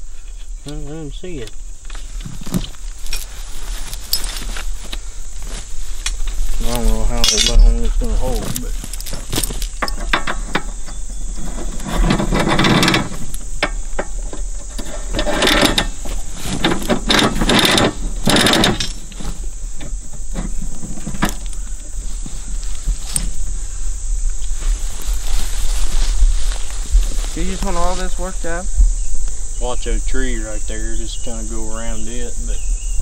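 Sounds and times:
high insect drone: 0:00.0 - 0:33.0
heavy chain clinking and rattling: 0:02.5 - 0:04.6, 0:06.6 - 0:11.0, 0:15.1 - 0:19.3.

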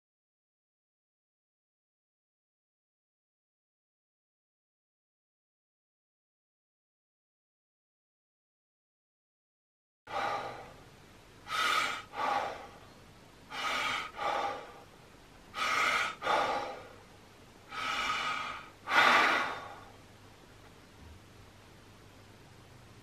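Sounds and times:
man breathing forcefully: 0:10.1 - 0:12.9, 0:13.5 - 0:20.0.

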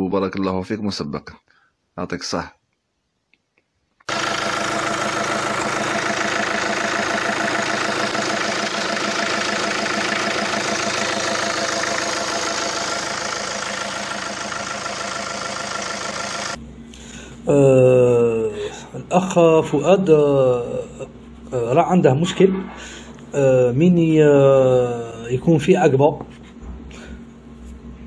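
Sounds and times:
diesel engine idling: 0:04.1 - 0:19.9.

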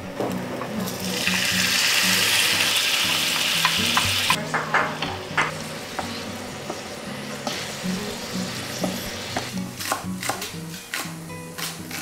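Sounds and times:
food sizzling in a frying pan: 0:00.8 - 0:04.4, 0:05.0 - 0:11.3
wooden spatula knocking on pan: 0:03.9 - 0:06.1.

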